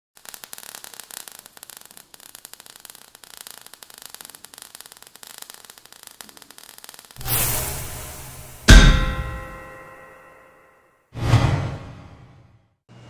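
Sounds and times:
crackling sparks: 0.2s - 10.1s.

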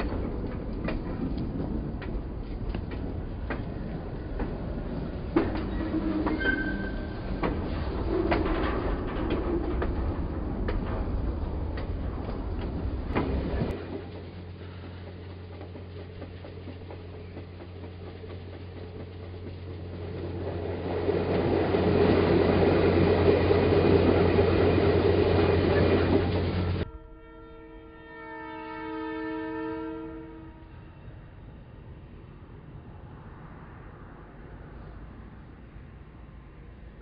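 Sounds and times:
model train rolling rattle: 4.3s - 26.8s
chord train horn: 26.8s - 30.8s.

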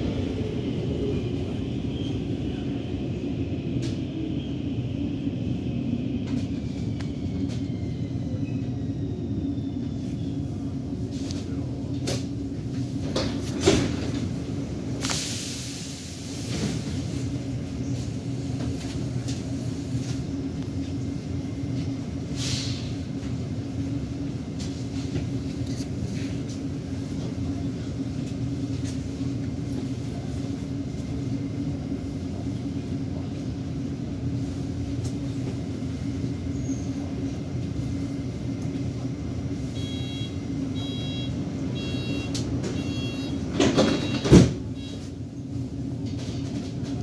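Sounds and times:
metro car hum and rumble: 0.0s - 47.0s
short high electronic beeps: 39.8s - 43.4s
sliding doors clunk shut: 42.5s - 44.7s.

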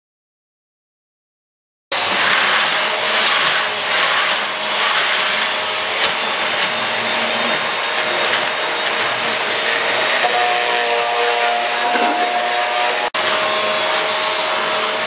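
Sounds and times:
vacuum cleaner running: 1.9s - 15.0s.

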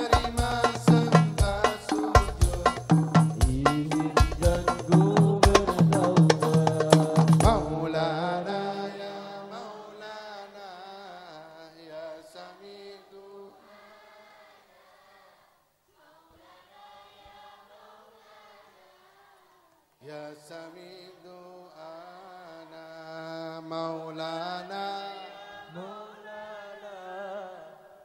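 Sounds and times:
drum strokes: 0.0s - 7.8s
men singing a devotional chant: 0.0s - 14.5s, 20.0s - 28.0s.

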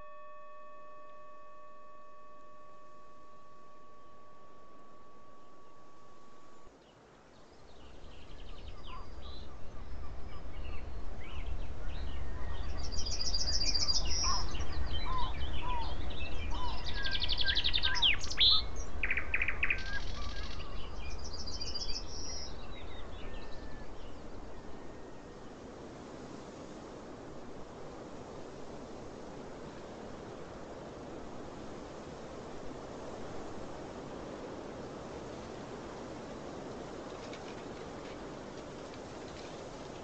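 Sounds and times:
low steady rumble: 0.0s - 6.7s
steady tone: 0.0s - 6.7s
birds singing and chirping: 7.9s - 24.2s.

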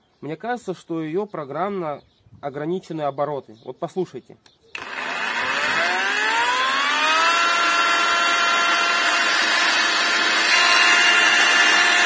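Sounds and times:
angle grinder whine: 4.8s - 12.0s.

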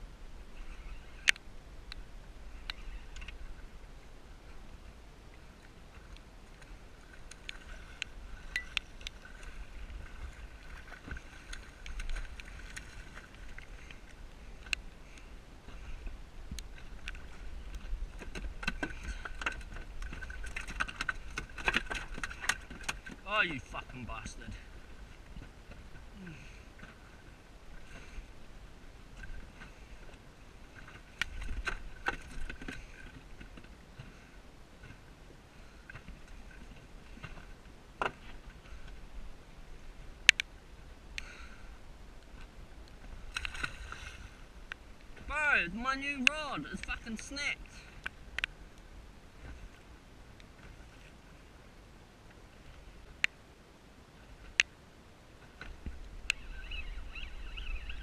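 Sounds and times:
faint steady background noise: 0.0s - 58.0s
faint high whine: 7.9s - 9.6s
gear clicking and knocking in boat: 16.5s - 23.6s, 29.2s - 34.2s.

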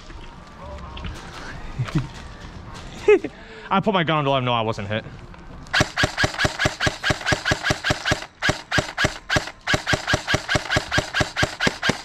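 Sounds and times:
airsoft rifle rapid firing: 5.8s - 12.0s.

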